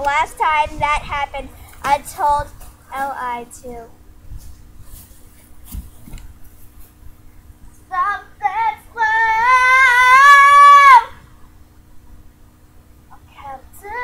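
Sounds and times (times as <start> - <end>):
girl singing: 0.0 - 4.0, 7.9 - 11.2, 13.1 - 14.0.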